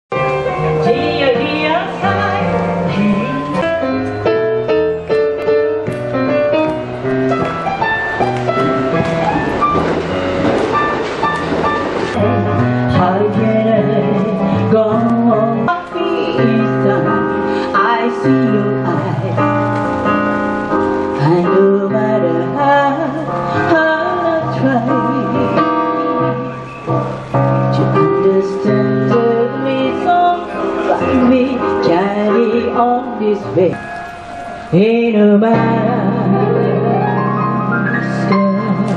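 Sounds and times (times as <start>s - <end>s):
electronic keyboard piano melody: 0.1s - 38.9s
woman singing into a microphone: 0.7s - 4.0s, 12.2s - 19.6s, 21.2s - 26.5s, 27.7s - 33.9s, 34.6s - 38.9s.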